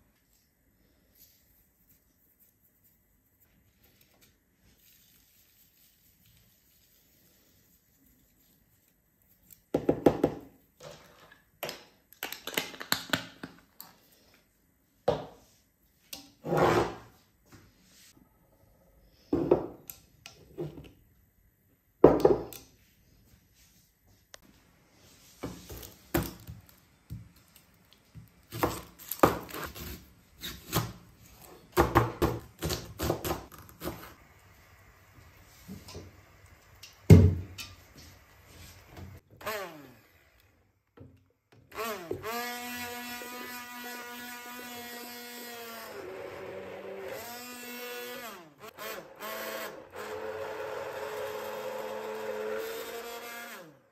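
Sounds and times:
kitchen knocks and thuds: 0:09.7 - 0:10.5, 0:19.4 - 0:19.8, 0:22.0 - 0:22.5, 0:37.1 - 0:37.6.

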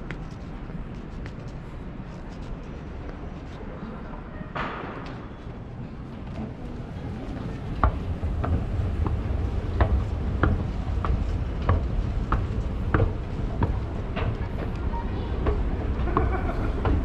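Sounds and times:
escalator low rumble: 0:05.4 - 0:17.0.

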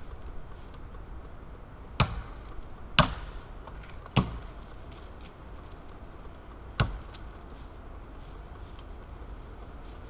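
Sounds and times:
axe chopping into tree trunk: 0:02.0 - 0:02.4, 0:03.0 - 0:04.5, 0:06.8 - 0:07.2.

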